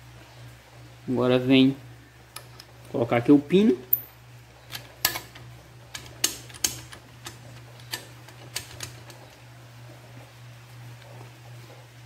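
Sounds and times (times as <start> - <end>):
metal parts clicking: 4.7 - 9.4.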